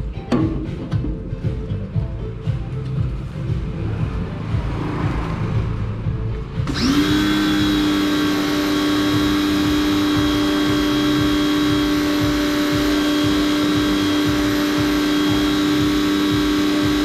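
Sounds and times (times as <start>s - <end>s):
small electric motor whine: 6.7s - 17.0s.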